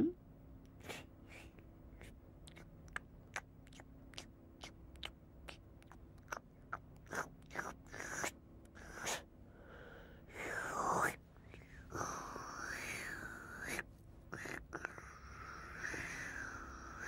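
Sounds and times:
person eating mouthfuls: 0.8s - 9.2s.

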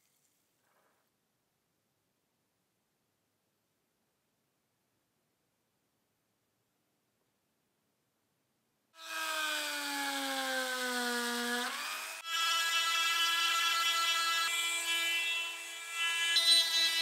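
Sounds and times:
power tool motor whining: 9.0s - 17.0s.

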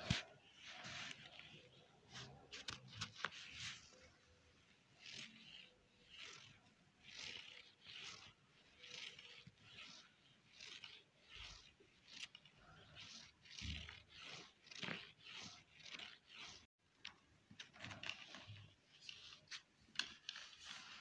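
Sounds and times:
kitten claws scraping carpet: 0.0s - 4.0s, 4.9s - 16.7s.

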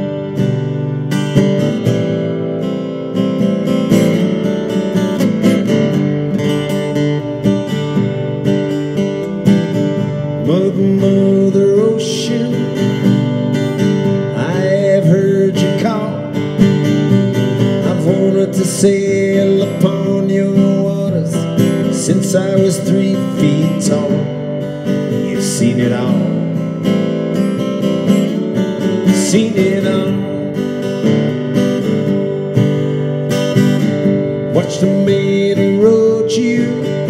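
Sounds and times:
acoustic guitar strumming: 0.0s - 37.0s
man singing: 10.1s - 13.2s, 14.0s - 16.8s, 17.6s - 26.7s, 28.8s - 31.0s, 34.4s - 37.0s.

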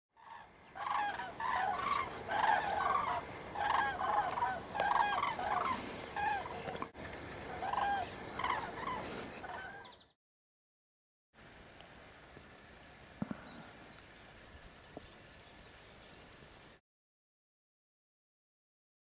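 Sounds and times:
cranes trumpeting calls: 0.2s - 10.0s.

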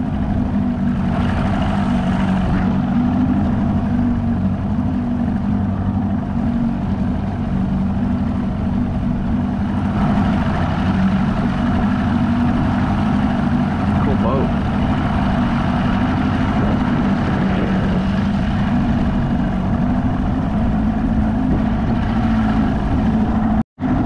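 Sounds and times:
boat motor drone: 0.0s - 24.0s
rushing wind and water: 0.0s - 24.0s.

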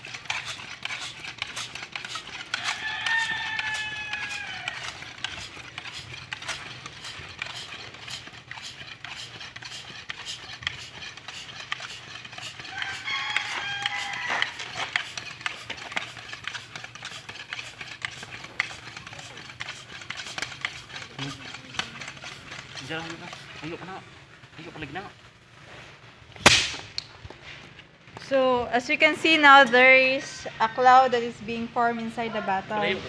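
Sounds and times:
bicycle pump strokes clicking: 0.0s - 25.3s
high-pitched cries: 2.6s - 5.2s, 12.6s - 14.9s.

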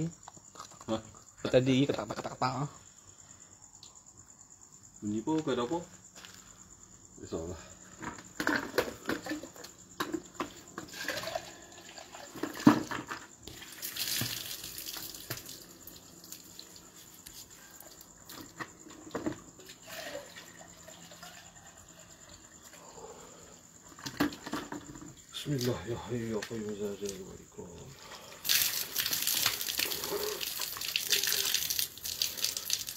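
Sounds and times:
water pouring and splashing: 10.9s - 17.9s, 28.1s - 32.9s.

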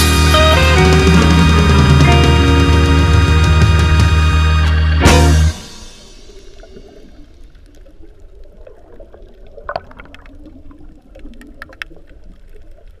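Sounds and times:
underwater bubbles gurgling: 6.0s - 13.0s.

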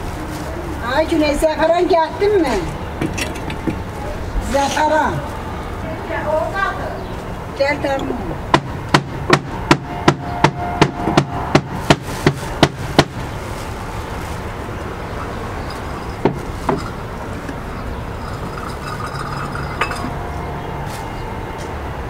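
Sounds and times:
steady background noise: 0.0s - 22.0s
sharp hammering knocks: 8.5s - 13.2s.

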